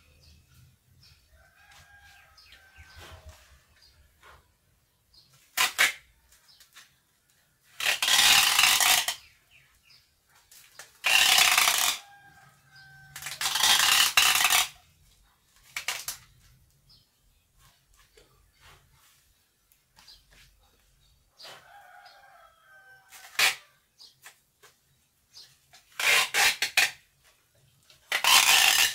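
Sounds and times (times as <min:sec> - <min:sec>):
tape ripping off roll: 0:05.2 - 0:07.0, 0:07.7 - 0:09.4, 0:10.5 - 0:14.8, 0:15.6 - 0:16.5, 0:23.0 - 0:24.8, 0:25.4 - 0:27.2, 0:28.0 - 0:28.9.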